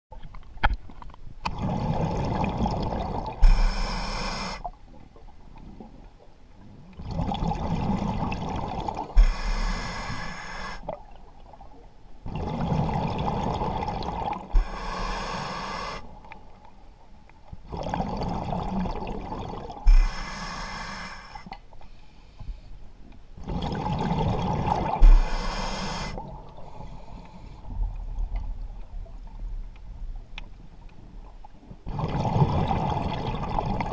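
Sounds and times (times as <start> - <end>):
diver breathing through regulator: 3.4 - 4.7, 9.2 - 10.9, 14.5 - 16.1, 19.8 - 22.8, 24.8 - 27.7.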